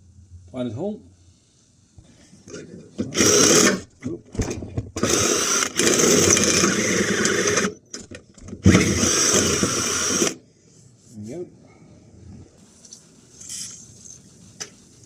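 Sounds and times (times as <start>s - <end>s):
electric drill cutting metal: 3.1s - 3.8s, 5.0s - 7.8s, 8.6s - 10.4s.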